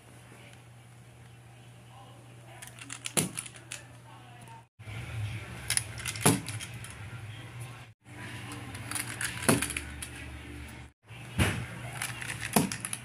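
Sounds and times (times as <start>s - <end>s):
toy trucks clacking: 2.6s - 3.9s, 8.5s - 10.2s, 11.9s - 13.0s.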